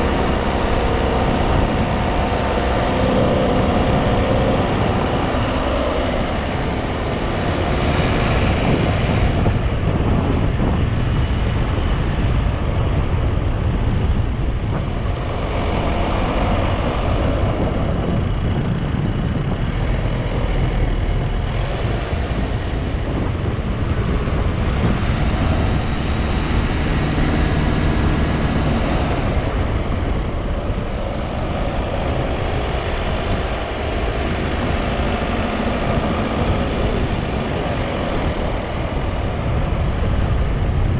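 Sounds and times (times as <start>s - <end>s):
car engine and tyre noise: 0.0s - 40.9s.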